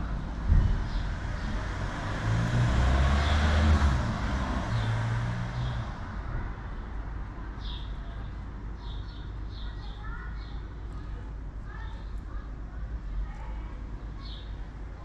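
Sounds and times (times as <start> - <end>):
vehicle passing by: 0.5 - 6.3.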